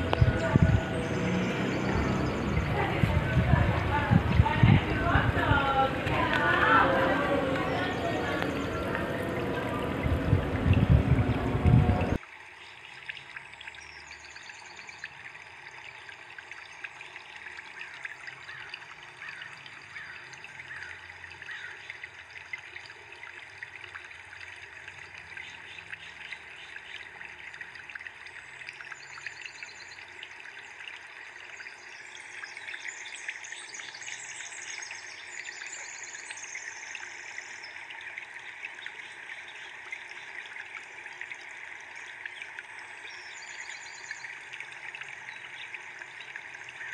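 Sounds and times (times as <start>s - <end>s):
birds chirping: 0.0s - 12.2s
water trickling and splashing: 0.0s - 46.9s.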